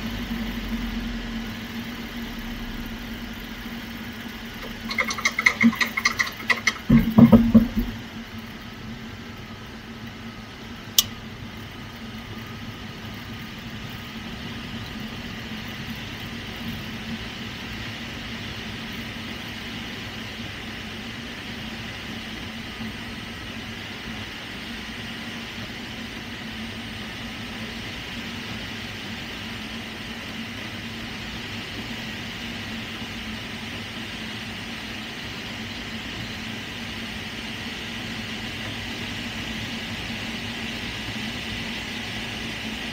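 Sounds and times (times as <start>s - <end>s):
faint steady hum: 0.0s - 42.9s
sharp click: 11.0s - 11.2s.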